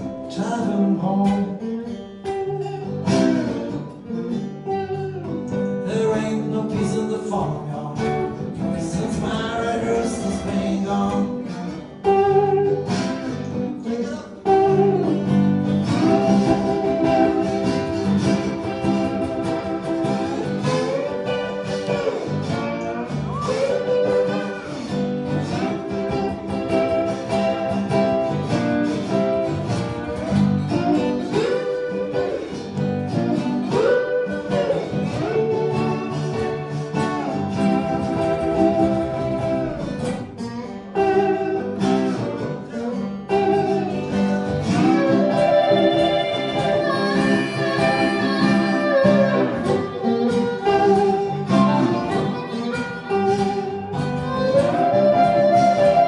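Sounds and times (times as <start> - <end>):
plucked rhythm guitar: 0.0 - 56.0
sliding lead guitar: 0.0 - 56.0
harmonica: 14.4 - 56.0.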